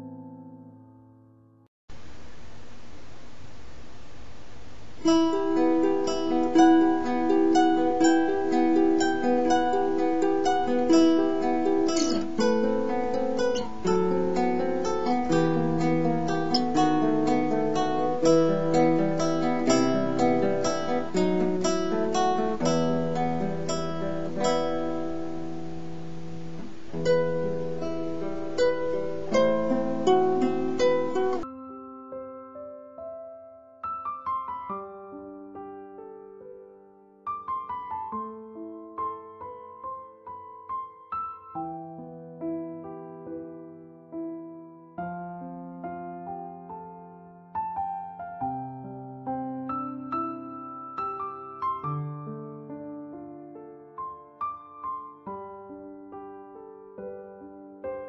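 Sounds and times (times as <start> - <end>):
steady hiss: 1.9 - 31.5
plucked acoustic string melody: 5.0 - 31.5.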